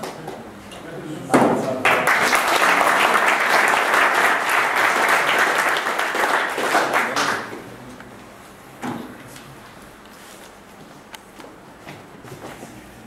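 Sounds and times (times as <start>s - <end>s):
audience applauding: 1.8s - 7.5s.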